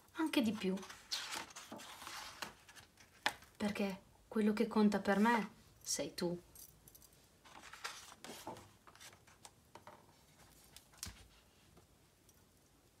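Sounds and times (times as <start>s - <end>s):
book pages rustling: 0.4s - 3.6s, 7.4s - 11.8s.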